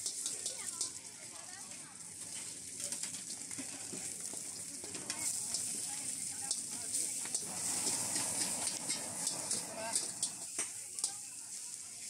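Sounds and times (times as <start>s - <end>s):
metal spatula scraping wok: 0.0s - 1.0s, 5.0s - 11.3s
food sizzling in wok: 0.0s - 12.0s.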